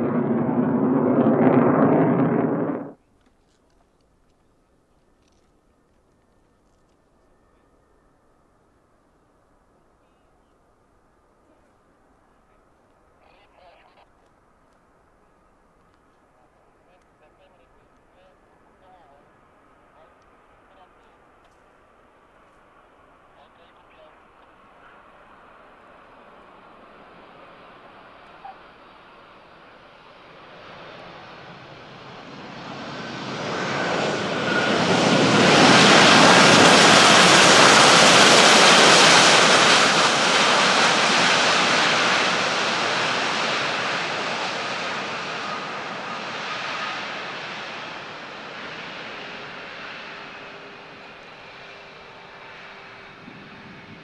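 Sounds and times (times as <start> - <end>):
jet aircraft flyby: 0.0 - 3.0, 21.9 - 54.0
faint jet engine whine: 0.0 - 54.0.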